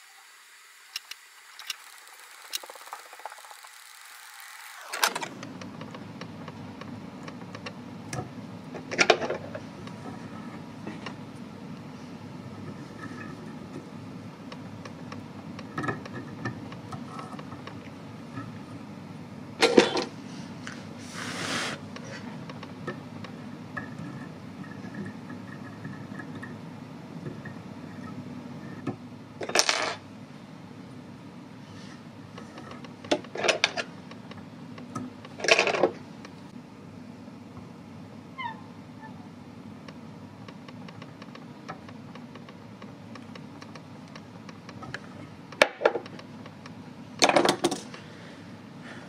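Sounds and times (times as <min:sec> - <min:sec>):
low steady hum: 0:05.0 - 0:49.0
short hiss: 0:21.0 - 0:21.9.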